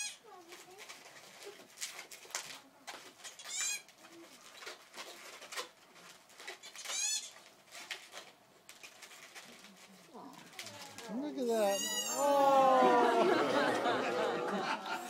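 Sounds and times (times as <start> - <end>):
balloon squeaking: 3.2 - 4.0, 6.4 - 7.6, 11.4 - 12.2.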